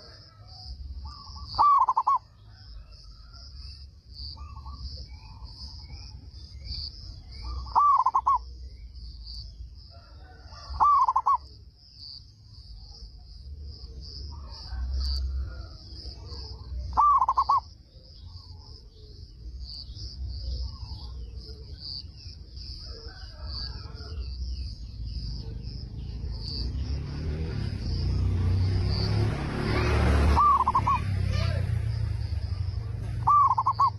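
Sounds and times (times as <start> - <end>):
dove cooing: 1.1 - 2.6, 7.4 - 8.5, 10.3 - 11.5, 14.3 - 17.7, 30.3 - 31.6, 33.2 - 33.9
insects buzzing: 18.4 - 33.9.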